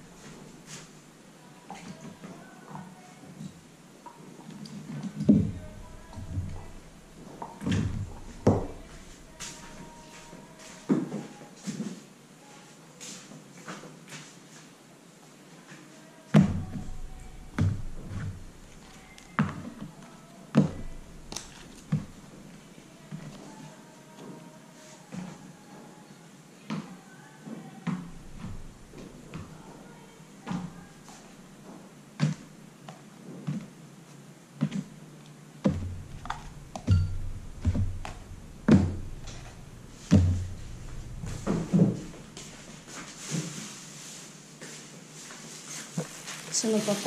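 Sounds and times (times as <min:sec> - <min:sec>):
low hum: 0:05.2 - 0:10.3, 0:16.5 - 0:23.1, 0:28.0 - 0:29.4, 0:35.6 - 0:43.2
soft thunks and taps: 0:35.6 - 0:42.6.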